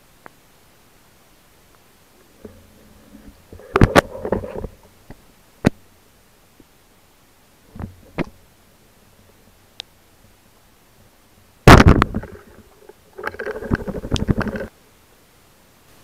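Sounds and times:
speargun firing crack: 11.7 - 12.4
rapid rattling clatter: 11.8 - 14.7.

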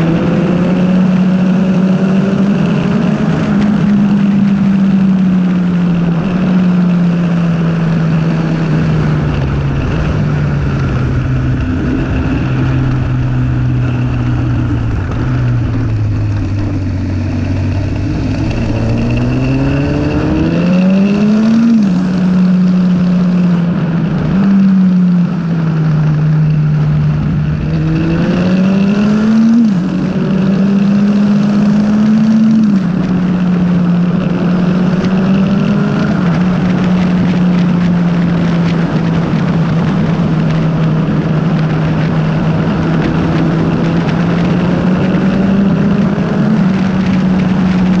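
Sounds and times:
motorcycle engine revving: 0.0 - 48.0
wind rushing: 7.1 - 23.2.

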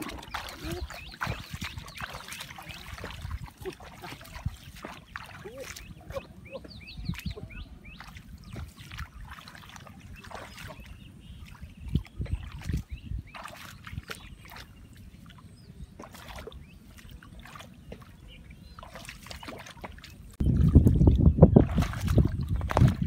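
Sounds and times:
hands stirring water: 0.0 - 14.8
bare feet wading through water: 0.0 - 23.0.

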